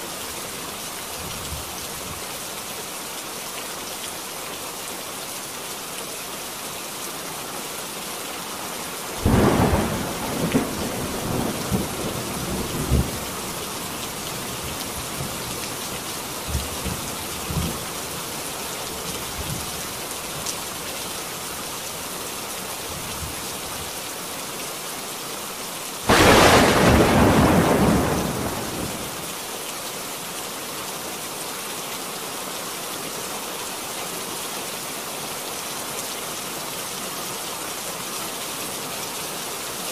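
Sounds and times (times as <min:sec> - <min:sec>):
steady rain: 0:00.0 - 0:39.9
rolling thunder: 0:26.1 - 0:29.2.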